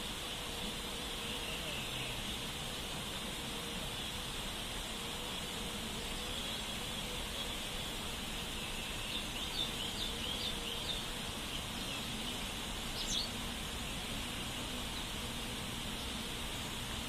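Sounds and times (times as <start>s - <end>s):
steady background hiss: 0.0s - 17.0s
bird chirping: 8.7s - 13.4s.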